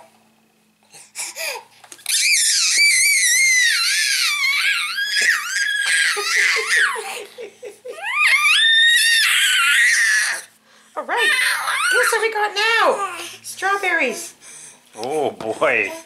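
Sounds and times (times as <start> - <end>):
baby squealing: 1.4 - 7.0, 8.0 - 10.5, 11.2 - 12.2
baby laughing: 4.3 - 8.6.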